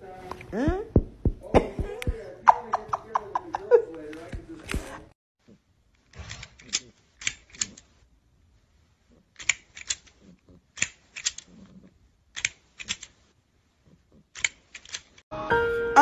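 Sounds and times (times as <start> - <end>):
plastic toy jaws clacking: 6.0 - 8.0, 9.2 - 13.3, 14.1 - 15.2.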